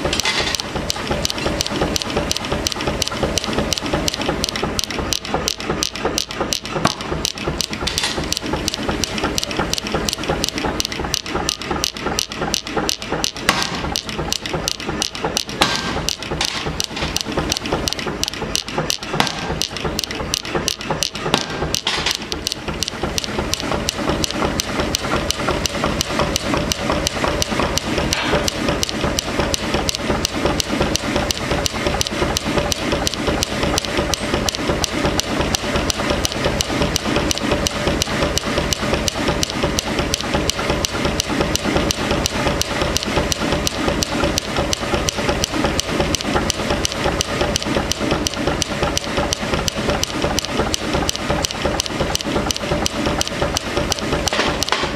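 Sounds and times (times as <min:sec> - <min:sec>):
machine running tone: 0:00.0 - 0:54.9
power hammer pounding steel: 0:00.0 - 0:54.9.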